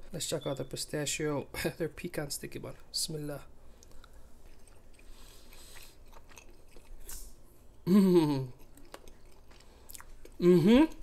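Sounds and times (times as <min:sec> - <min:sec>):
person chewing: 0:03.7 - 0:11.0
person humming mmm: 0:07.8 - 0:08.6, 0:10.4 - 0:11.0.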